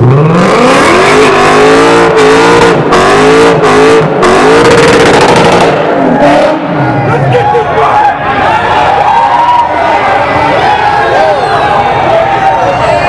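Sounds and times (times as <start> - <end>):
car engine revving during burnout: 0.0 - 7.3.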